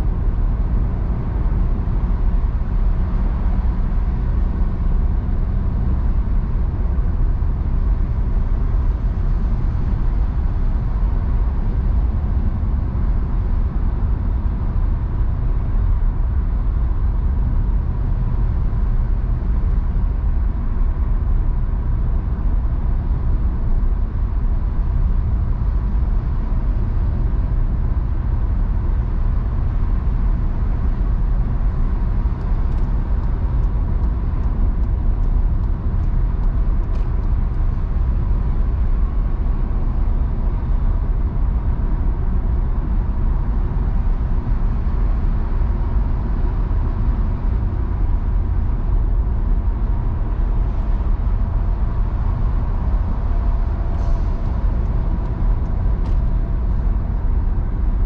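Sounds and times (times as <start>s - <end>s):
faint constant tone: 0.0s - 58.0s
tyres and engine rumble: 0.0s - 58.0s.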